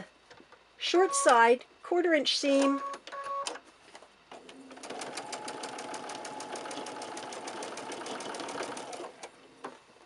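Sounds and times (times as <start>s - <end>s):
sewing machine stitching: 4.4s - 9.3s.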